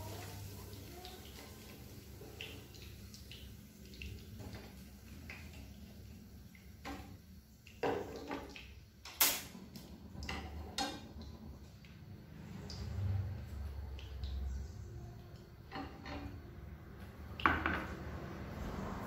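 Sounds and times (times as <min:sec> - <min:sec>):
frying sizzle: 0:00.0 - 0:19.0.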